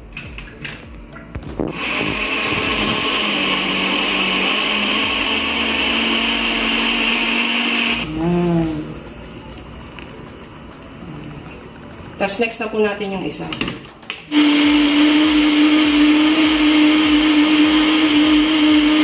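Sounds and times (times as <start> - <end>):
electric blender running: 1.7 - 8.2, 14.3 - 19.0.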